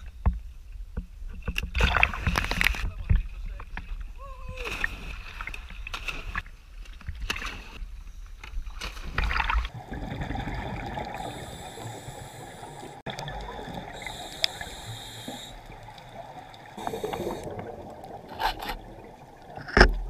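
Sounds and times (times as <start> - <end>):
sea water sloshing: 8.8 - 20.0
dull underwater sound: 9.4 - 20.0
underwater hiss: 11.0 - 13.0, 13.9 - 16.0, 16.7 - 17.8.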